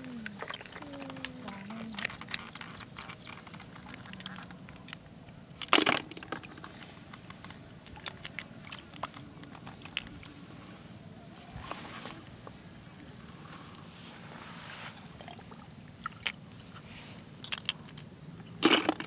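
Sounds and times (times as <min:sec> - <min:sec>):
grass rustling under hands: 0:10.2 - 0:12.6, 0:13.3 - 0:15.3.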